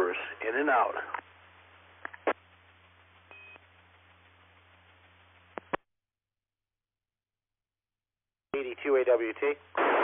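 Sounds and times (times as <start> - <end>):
faint receiver hiss and hum: 0.0 - 5.8.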